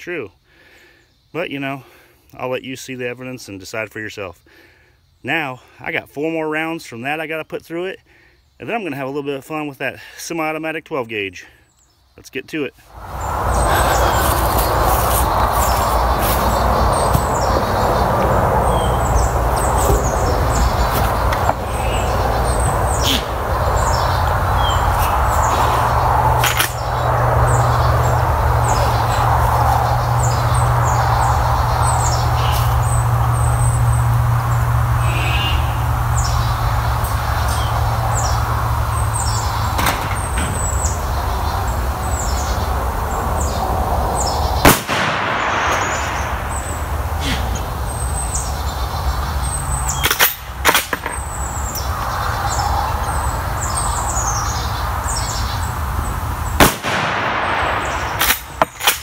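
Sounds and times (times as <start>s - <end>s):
small birds chirping: 0.0s - 58.9s
steady low rumble: 13.0s - 48.7s
rifle shot: 44.6s - 46.2s, 56.6s - 59.0s.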